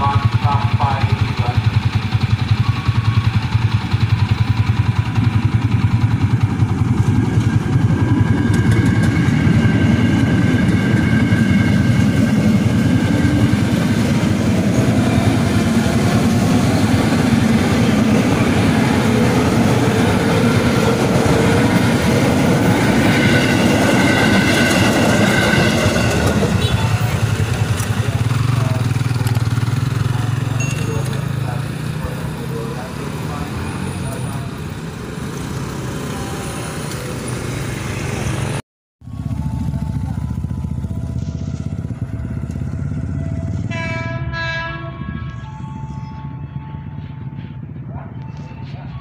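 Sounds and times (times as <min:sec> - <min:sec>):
motorcycle engine idling: 0:00.0 - 0:19.2, 0:26.4 - 0:34.2, 0:39.0 - 0:43.8
train wheels rumbling on rails: 0:00.0 - 0:49.0.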